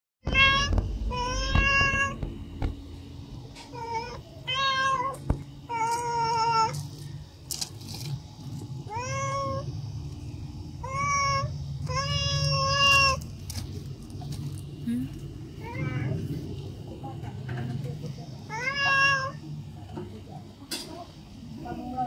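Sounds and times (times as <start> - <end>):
cat meowing: 0.2 - 2.2, 3.7 - 6.8, 8.9 - 9.7, 10.8 - 13.3, 18.5 - 19.4.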